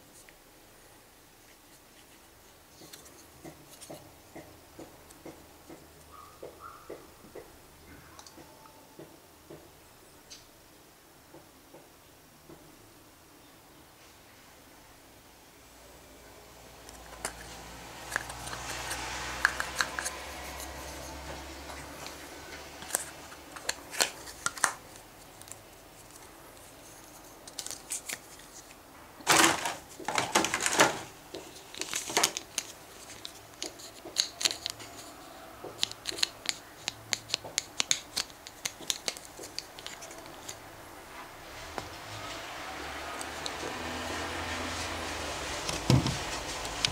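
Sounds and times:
plastic tools clicking and tapping: 16.9s - 24.8s, 29.3s - 40.6s
plastic tools clattering: 29.2s - 35.1s.

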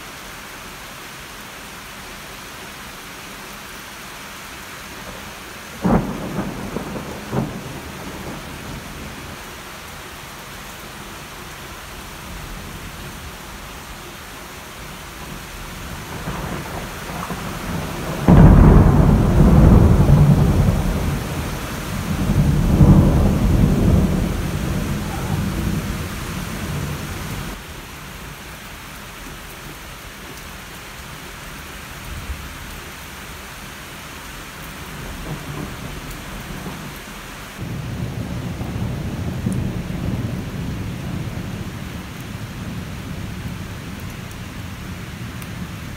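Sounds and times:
heavy rain: 0.0s - 45.9s
thunder rumbling: 5.8s - 9.5s, 15.1s - 27.6s, 37.6s - 45.9s.

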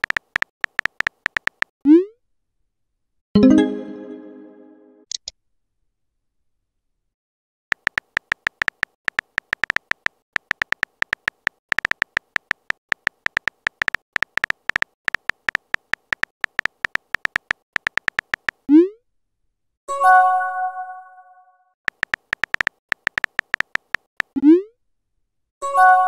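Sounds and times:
phone keyboard key clicks: 0.0s - 1.7s, 7.7s - 18.6s, 21.9s - 24.4s
bell-like notification chime: 3.4s - 5.0s.

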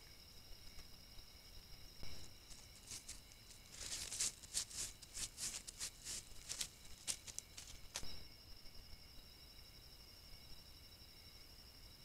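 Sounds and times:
animal rustling: 2.4s - 8.1s.

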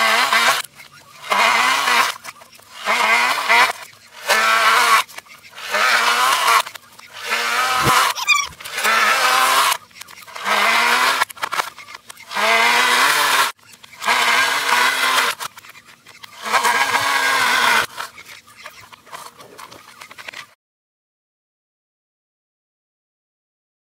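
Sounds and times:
electric snow shovel motor whining: 0.0s - 18.2s.

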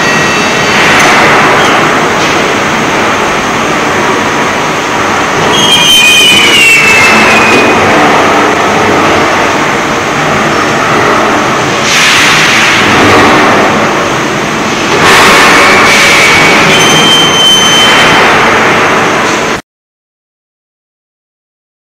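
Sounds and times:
machinery rumble: 0.0s - 19.6s
steel pipe on roller conveyor: 0.0s - 19.6s
brief high squeal: 5.5s - 7.8s, 16.7s - 18.2s
bursts of hiss: 11.8s - 13.0s.

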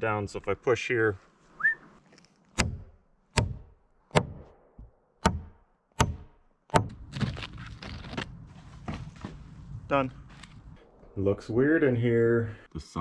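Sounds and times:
hammer striking nails into wood: 2.6s - 4.5s, 5.2s - 7.0s.

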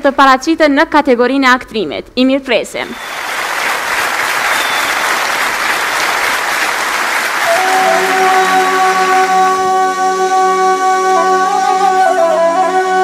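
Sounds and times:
applause: 2.9s - 9.6s
music with long held notes: 7.4s - 13.0s.

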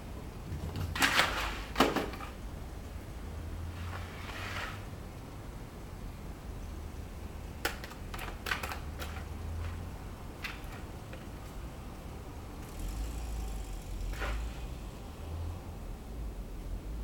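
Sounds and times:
low steady hum: 0.0s - 8.2s
cat pawing plastic toy clicks: 7.6s - 9.8s.

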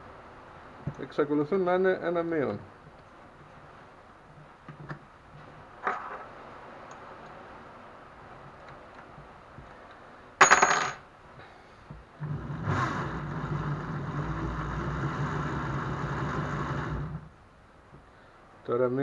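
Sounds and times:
electric drill running: 12.3s - 17.2s.

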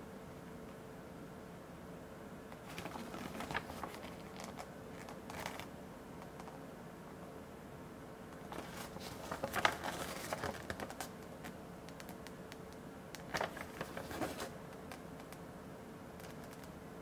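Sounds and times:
paper sheet rustling: 2.6s - 5.7s, 8.5s - 11.2s, 13.3s - 14.6s.

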